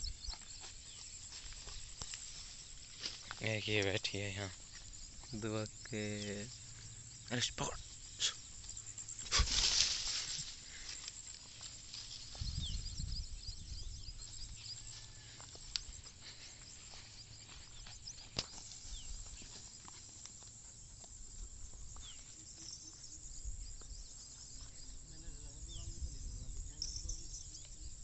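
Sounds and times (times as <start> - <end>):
dogs rustling through dry grass: 8.8 - 12.8, 14.9 - 20.6.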